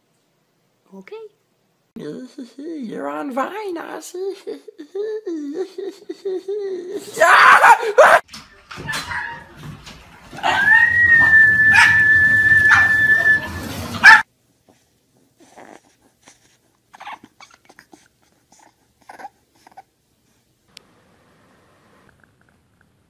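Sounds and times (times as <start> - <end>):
dog whining: 10.4 - 14.2, 15.4 - 19.9
puppy whimpering: 10.4 - 14.2, 15.4 - 19.9.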